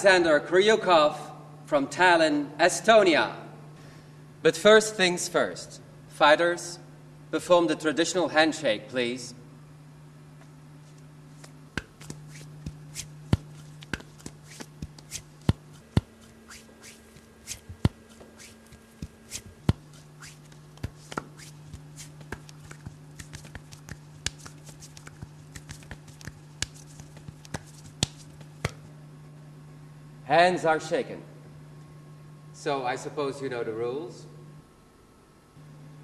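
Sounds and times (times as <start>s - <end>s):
steady low hum: 0.0s - 36.0s
hands slapping and clapping: 11.4s - 28.8s.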